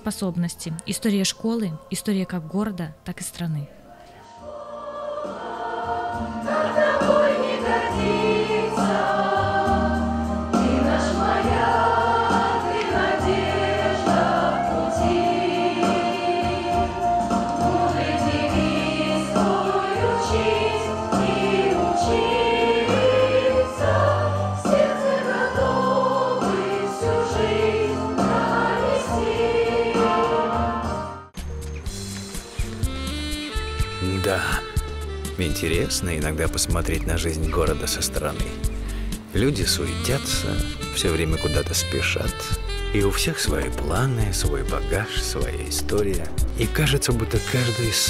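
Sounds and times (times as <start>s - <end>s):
children's choir singing: 4.4s - 31.3s
instrumental accompaniment with bass: 5.8s - 48.0s.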